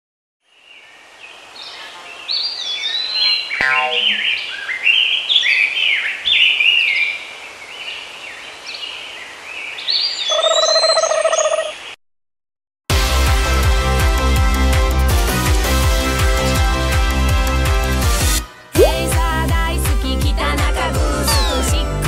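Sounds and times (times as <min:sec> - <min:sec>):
birds chirping and singing: 0:01.6 - 0:07.2, 0:09.6 - 0:11.8, 0:21.3 - 0:21.9
lower bird call: 0:01.8 - 0:06.8, 0:10.2 - 0:11.9.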